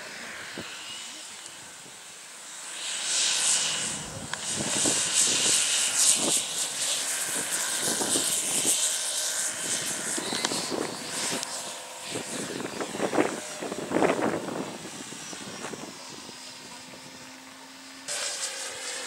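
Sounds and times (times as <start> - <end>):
model airplane engine at full power: 0.0 - 19.0.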